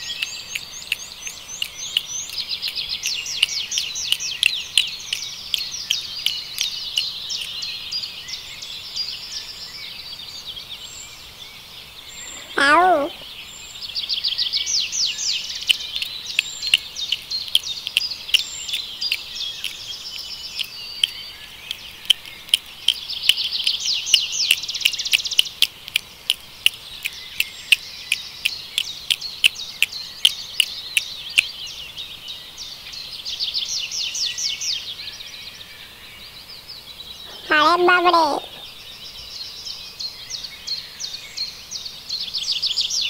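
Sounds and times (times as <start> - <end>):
sharp clicks: 0.0 - 7.6, 15.6 - 31.5
songbirds trilling: 0.0 - 43.0.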